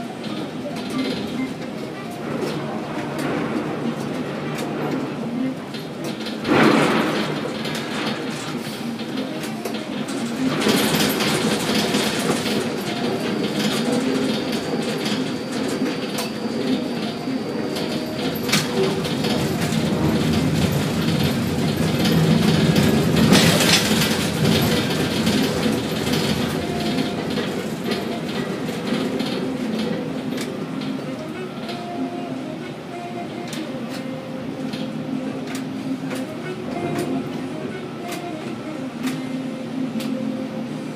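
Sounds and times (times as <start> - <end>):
crane machinery hum: 0.0 - 40.9
rattling and clanking: 0.1 - 31.9.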